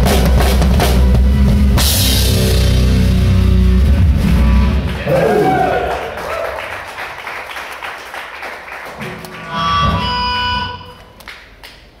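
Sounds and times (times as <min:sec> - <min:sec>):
live rock band playing: 0:00.0 - 0:05.0, 0:09.0 - 0:11.1.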